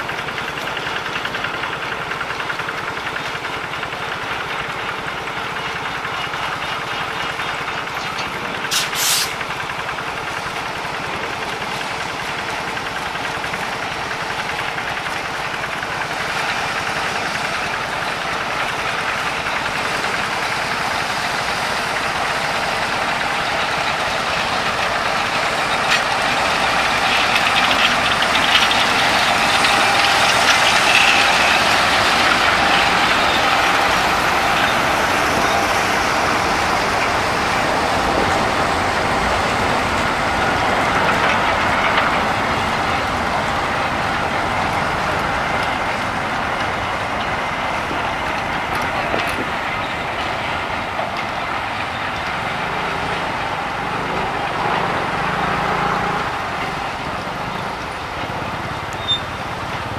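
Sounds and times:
diesel locomotive engine running: 0.0 - 59.9
short high hiss: 8.7 - 9.4.

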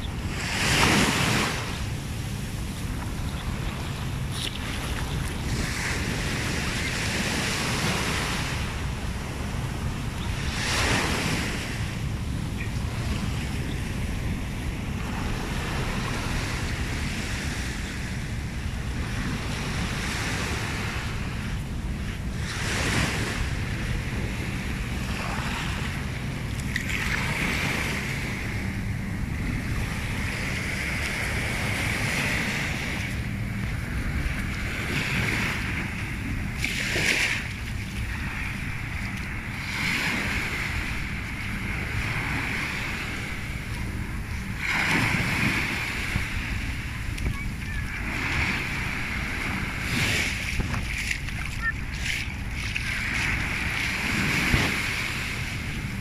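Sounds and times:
small waves washing up beach: 0.0 - 56.0
wind rumble on microphone: 0.0 - 56.0.

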